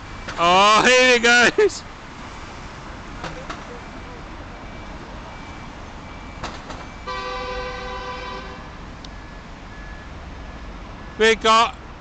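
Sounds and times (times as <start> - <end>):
faint reversing beeper: 3.7 - 7.2, 9.1 - 11.4
bus horn toot: 7.0 - 8.8.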